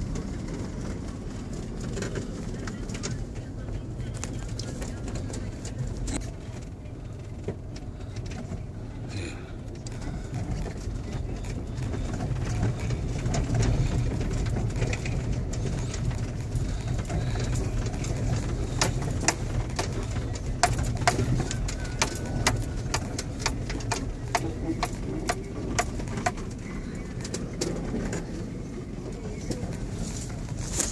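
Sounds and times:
engine and tyre rumble: 0.0s - 30.9s
sharp clicks and knocks: 12.0s - 26.6s.

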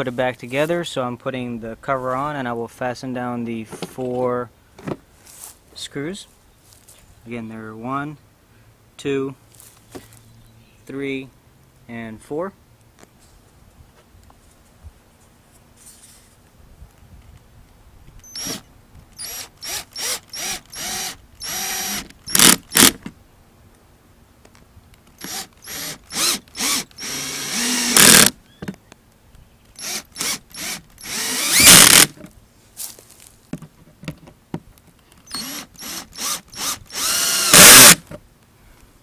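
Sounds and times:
cordless drill whining: 18.2s - 18.6s, 19.2s - 23.0s, 25.2s - 28.4s, 29.8s - 32.2s, 35.2s - 38.0s.

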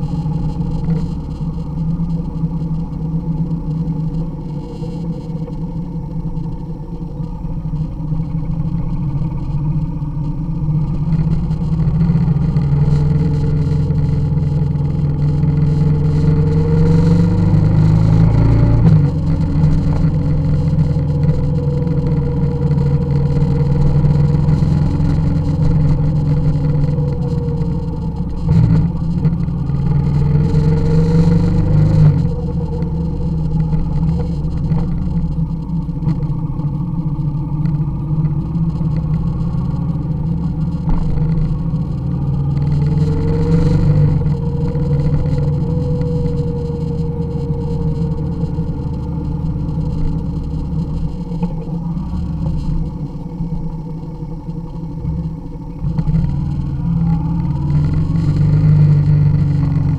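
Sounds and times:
motorcycle engine accelerating: 0.0s - 59.9s.

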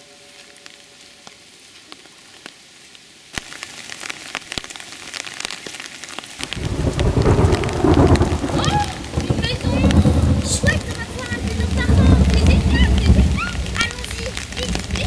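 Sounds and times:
rain pattering on leaves: 0.0s - 15.0s
loud low rumble: 6.7s - 14.0s.

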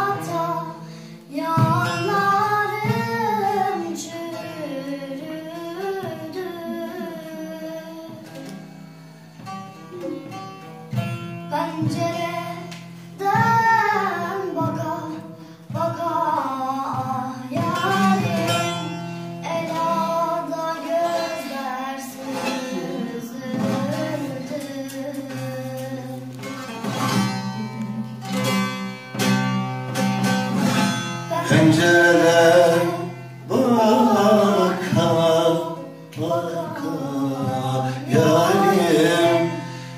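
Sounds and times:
man singing: 0.0s - 8.2s, 13.2s - 26.4s, 31.3s - 39.9s
girl singing folk song: 0.0s - 39.9s
long-necked lute strummed: 0.0s - 39.9s.

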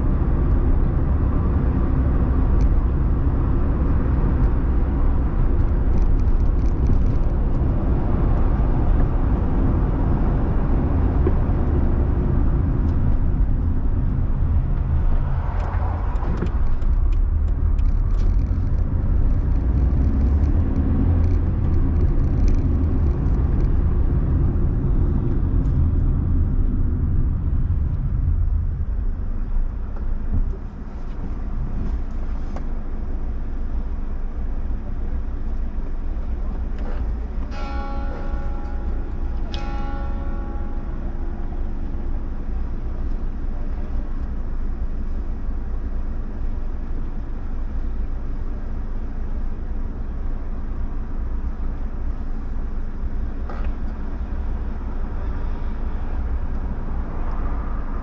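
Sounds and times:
car engine and tyre rumble: 0.0s - 58.0s.

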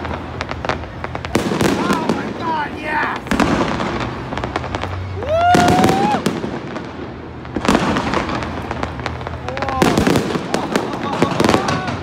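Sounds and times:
fireworks bangs and crackles: 0.0s - 12.0s
person whooping: 5.2s - 6.2s.

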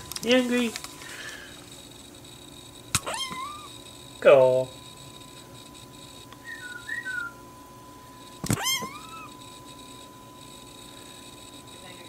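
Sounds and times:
kitten meowing: 3.0s - 3.8s, 8.5s - 9.4s.

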